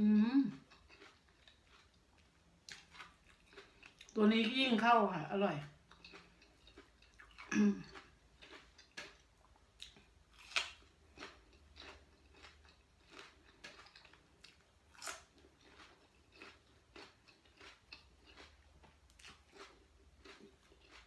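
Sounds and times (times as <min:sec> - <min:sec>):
person chewing crunchy pepper: 0:00.5 - 0:04.5, 0:05.6 - 0:21.0.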